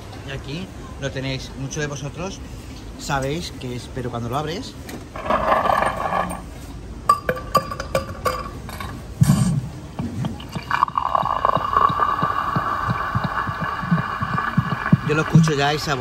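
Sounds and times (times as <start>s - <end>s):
glass and ice clinking: 7.1s - 9.0s, 10.3s - 15.6s
drink pouring and fizzing: 10.1s - 16.0s.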